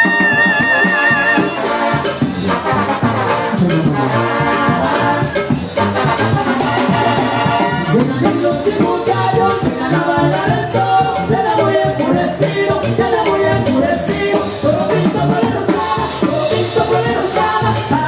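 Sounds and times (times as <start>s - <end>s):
brass and clarinets: 0.0s - 8.6s
drums keeping a beat: 0.0s - 18.0s
sousaphone bass line: 0.0s - 18.0s.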